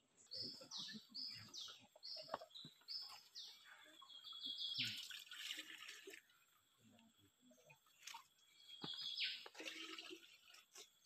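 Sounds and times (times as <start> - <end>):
water poured into a jar: 4.8 - 6.4, 9.4 - 11.0.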